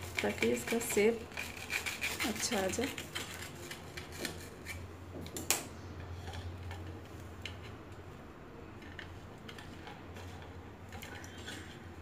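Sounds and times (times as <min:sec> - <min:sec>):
knife scraping ceramic plate: 0:00.0 - 0:04.9.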